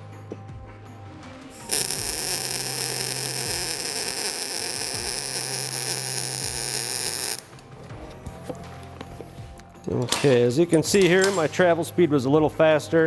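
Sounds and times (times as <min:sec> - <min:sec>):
welding arc hissing: 0:01.5 - 0:07.6.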